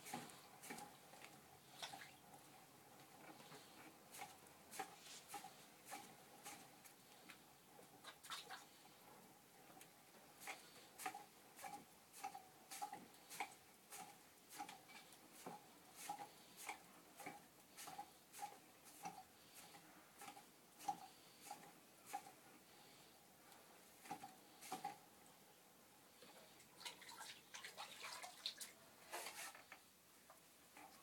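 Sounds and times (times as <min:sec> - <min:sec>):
potter's wheel turning: 0:10.4 - 0:22.4.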